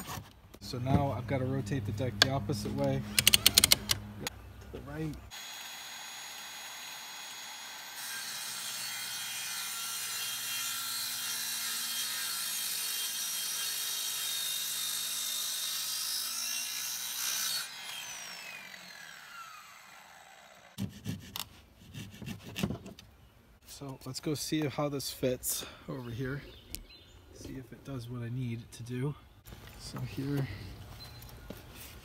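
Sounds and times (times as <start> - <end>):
miter saw cutting wood: 5.3 - 21.3.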